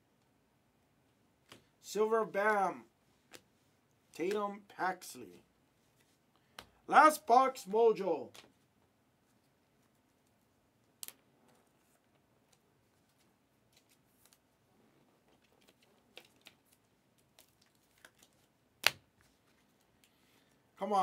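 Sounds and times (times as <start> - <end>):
card packs clicking and crinkling: 15.3 - 18.5.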